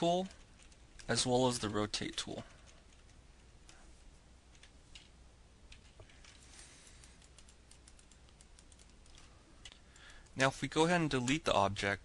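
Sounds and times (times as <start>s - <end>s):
low steady hiss: 0.0s - 12.0s
computer keyboard typing: 0.2s - 3.8s, 4.5s - 5.1s, 7.0s - 10.4s.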